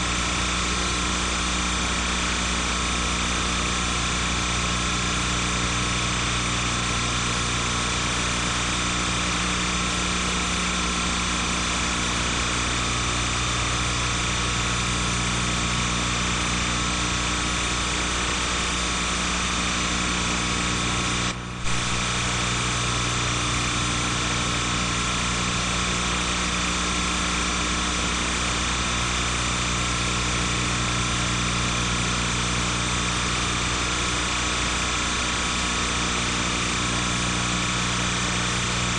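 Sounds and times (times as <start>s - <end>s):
electrical hum and hiss: 12.0s - 30.3s.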